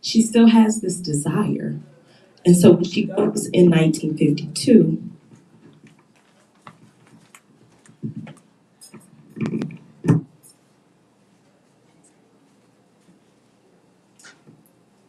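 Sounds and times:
microphone handling rustling: 5.2s - 10.3s
microphone thumps: 6.7s - 10.3s.

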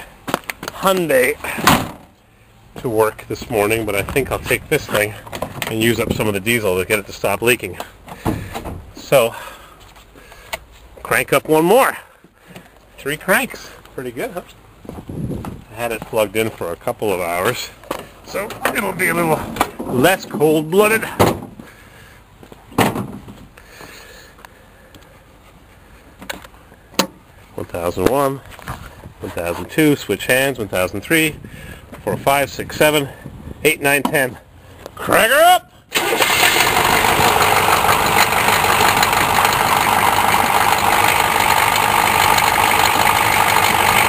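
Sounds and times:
knocks and clunks in engine bay: 7.8s - 9.0s, 21.1s - 21.7s
diesel engine idling: 36.0s - 44.0s.

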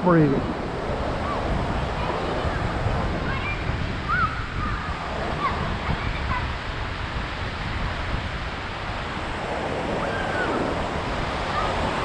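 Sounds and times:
waves breaking on beach: 0.0s - 12.0s
wind rumbling on microphone: 0.0s - 12.0s.

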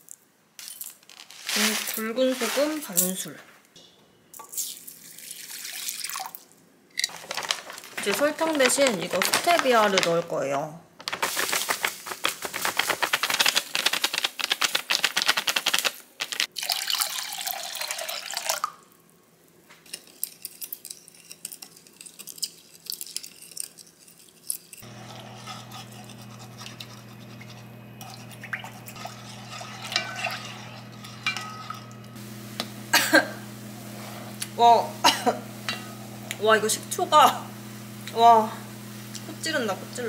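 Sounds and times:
spatula scraping glass bowl: 24.8s - 32.2s
cooktop low hum: 24.8s - 40.0s.

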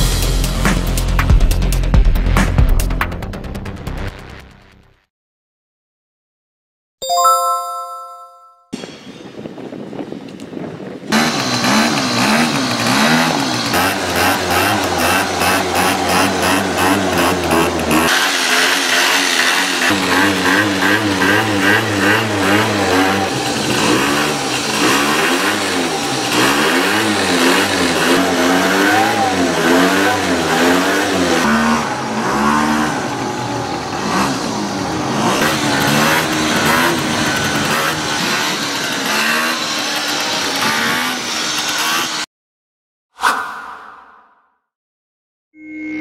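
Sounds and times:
scooter engine revving: 11.1s - 42.3s.

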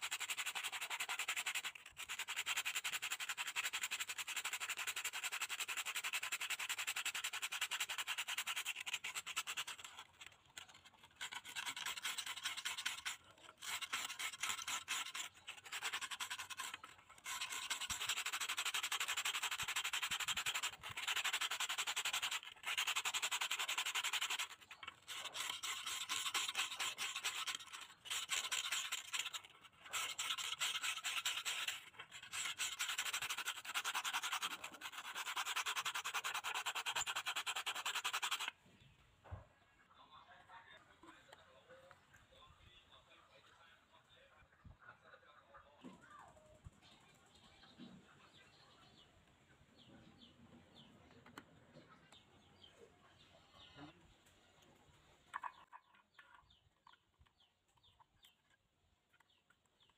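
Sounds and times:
abrasive scrubbing rusty metal: 6.8s - 38.5s.

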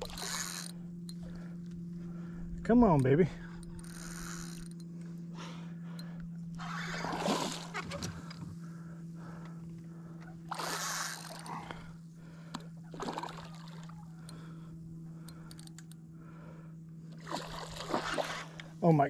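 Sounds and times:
low hum: 0.0s - 19.0s
fish splashing at water surface: 12.9s - 14.0s, 17.2s - 18.6s.

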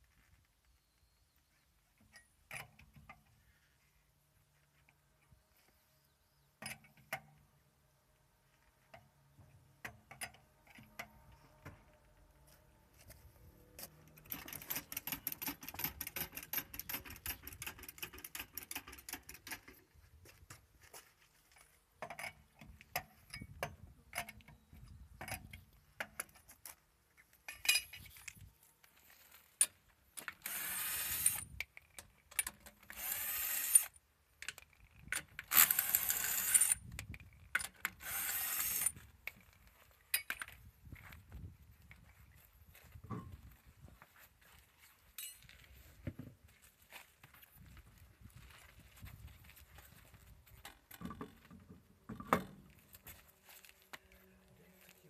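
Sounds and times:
wrench clicking on lug nuts: 14.2s - 19.8s
cordless screwdriver spinning: 30.4s - 31.6s, 32.8s - 34.0s, 35.4s - 36.9s, 37.9s - 39.0s.

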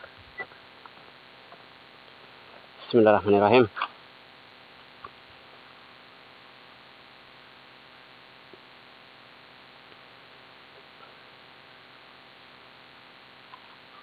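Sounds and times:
background hiss: 0.0s - 14.0s
faint clicks: 13.4s - 13.9s.

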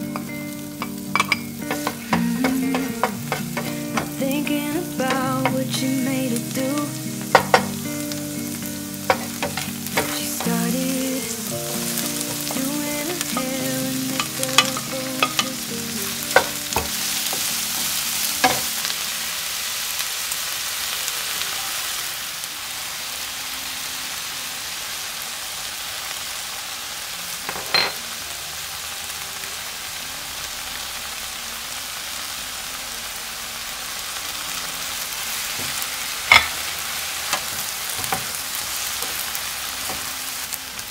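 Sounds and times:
soft melody: 0.0s - 19.6s
food sizzling in oil: 0.0s - 40.9s
spatula scraping a pan: 0.1s - 4.2s.

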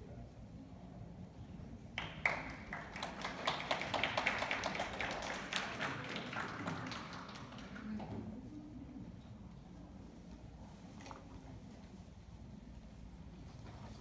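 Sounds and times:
crowd clapping: 2.0s - 8.2s.

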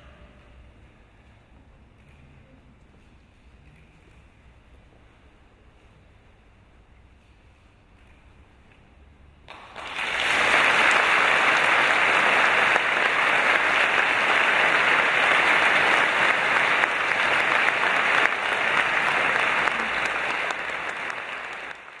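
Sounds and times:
audience applauding: 9.5s - 22.0s.

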